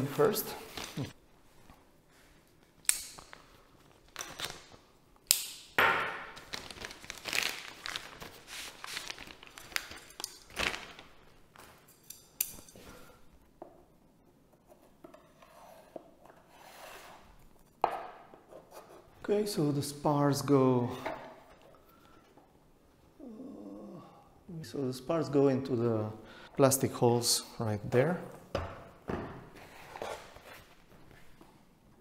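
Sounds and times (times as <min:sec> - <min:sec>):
plastic bag crinkling: 0:06.4 - 0:11.3.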